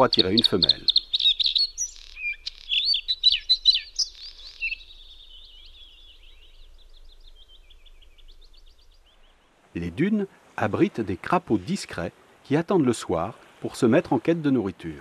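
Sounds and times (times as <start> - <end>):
songbird whistled phrases: 0.0 - 6.7
quick bird twittering: 0.0 - 9.4.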